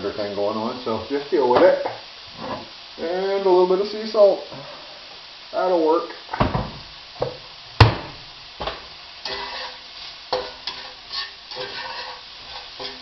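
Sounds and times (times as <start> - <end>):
sausage and onion frying: 0.0 - 13.0
spatula scraping and knocking pan: 8.6 - 13.0.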